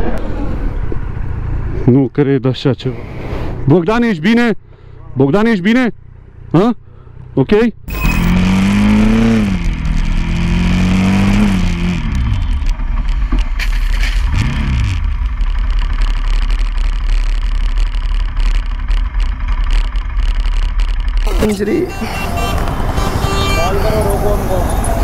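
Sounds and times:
road noise: 0.0 - 25.0
motorcycle engine revving: 7.9 - 25.0.

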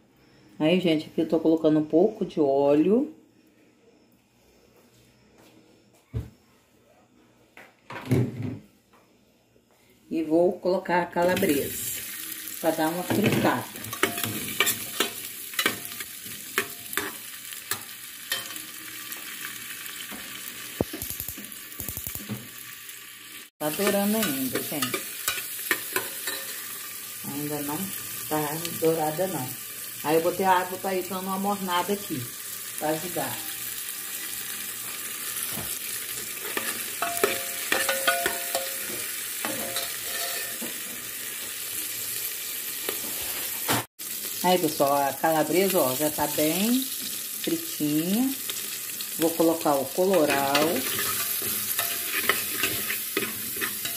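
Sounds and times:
sausage sizzling in oil: 10.6 - 53.9
metal spoon scraping a pot: 36.4 - 40.6, 50.1 - 53.9.

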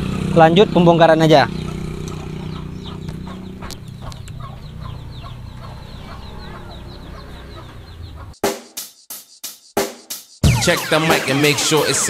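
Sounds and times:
chickens clucking and peeping: 1.5 - 8.4.

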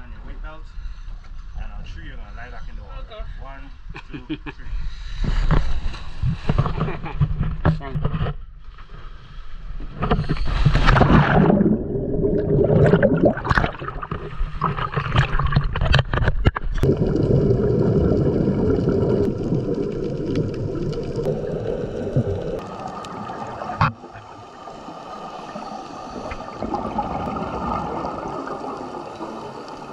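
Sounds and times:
underwater gurgling and bubbling: 10.0 - 29.9
big water splash: 10.5 - 24.2.

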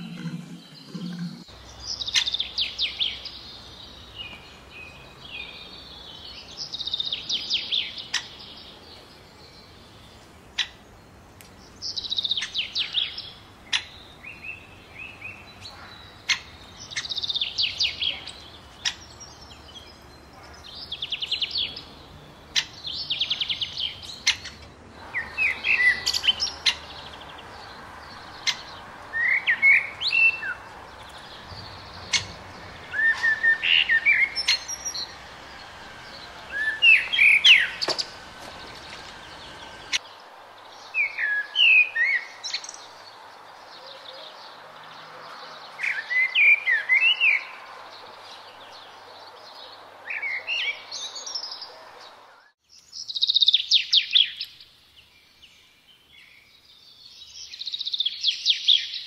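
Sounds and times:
songbirds singing: 0.0 - 59.0
steady hiss: 24.8 - 41.2.

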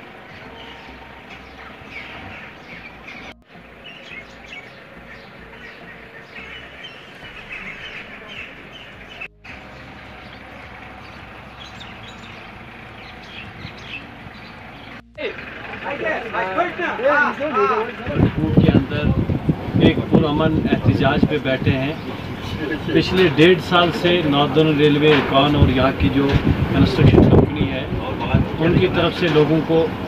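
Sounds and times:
small birds chirping: 0.0 - 16.0
vehicle traffic rumble: 0.0 - 30.0.

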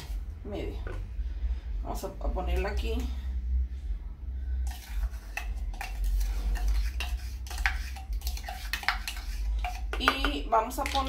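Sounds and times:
steady low hum: 0.0 - 11.0
measuring cups tapping plastic bowl: 4.7 - 11.0.

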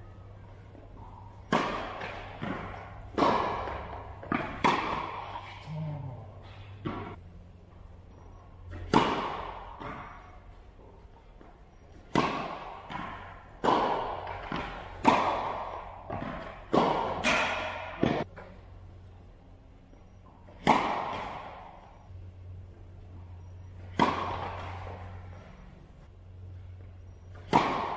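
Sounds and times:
racket hitting tennis ball: 0.7 - 5.6, 6.5 - 7.2, 8.7 - 10.4, 11.9 - 18.6, 20.5 - 22.0, 23.8 - 25.6, 27.3 - 27.9
tennis ball bouncing: 0.7 - 5.6, 6.6 - 7.2, 8.6 - 10.6, 11.9 - 18.6, 20.2 - 22.7, 23.6 - 25.8, 27.3 - 27.9.

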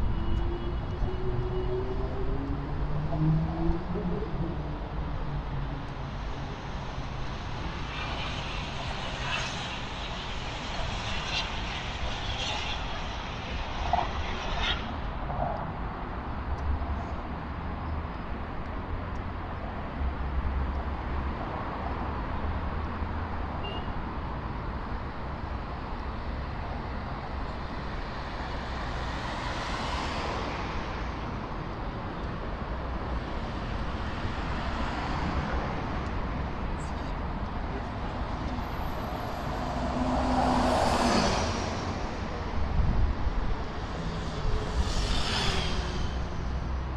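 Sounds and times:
road traffic noise: 0.0 - 46.9
vehicle passing by: 37.7 - 42.8.

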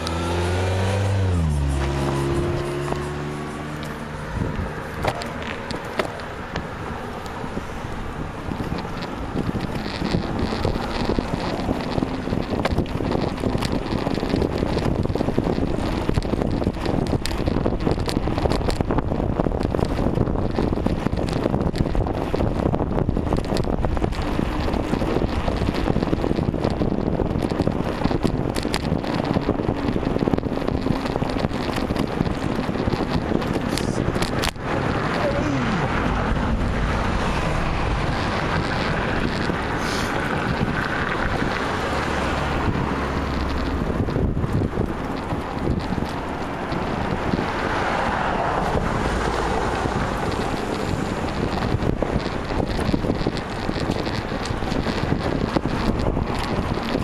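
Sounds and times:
road and tyre noise: 0.0 - 57.0
wind buffeting microphone: 0.0 - 57.0
small clicks and knocks: 23.3 - 34.6.

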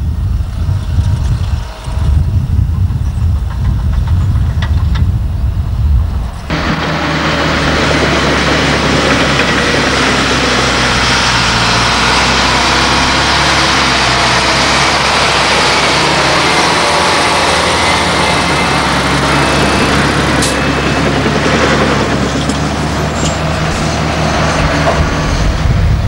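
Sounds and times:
dump truck diesel engine: 0.0 - 26.0.

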